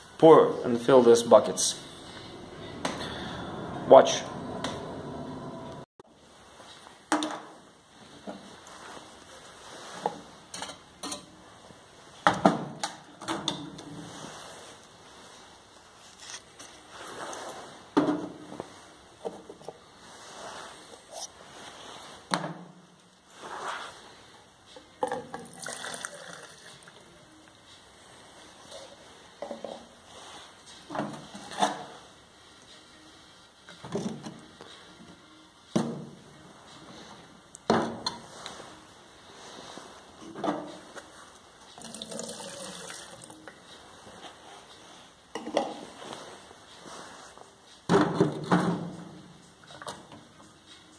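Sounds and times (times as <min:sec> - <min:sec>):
liquid pouring into metal can: 0:25.3 - 0:26.9, 0:41.8 - 0:43.4.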